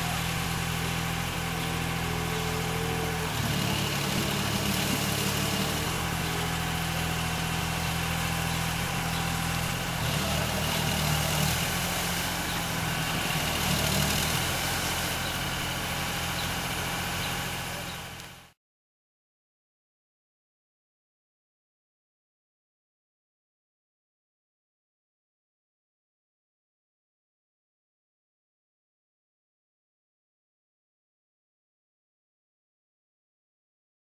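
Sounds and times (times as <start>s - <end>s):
boat engine running: 0.0s - 18.6s.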